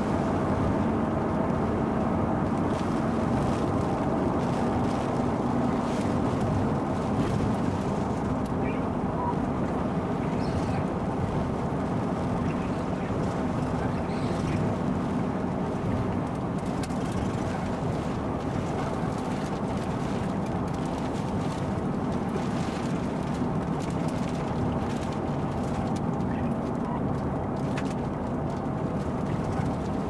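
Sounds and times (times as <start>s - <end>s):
car road rumble: 0.0s - 30.0s
raindrops tapping on windshield: 1.3s - 30.0s.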